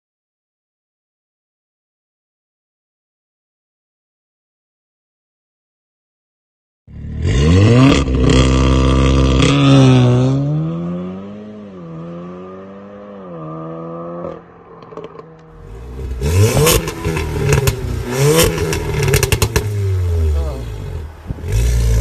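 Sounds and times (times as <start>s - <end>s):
car engine revving: 6.9s - 22.0s
exhaust crackling: 14.7s - 22.0s.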